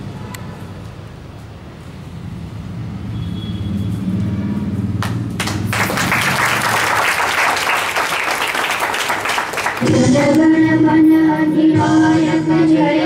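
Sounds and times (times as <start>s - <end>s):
crowd applauding: 5.0s - 9.9s.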